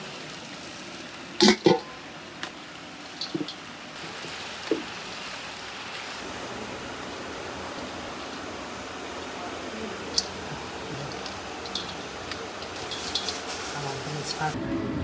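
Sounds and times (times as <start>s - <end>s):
background hiss: 0.0s - 14.6s.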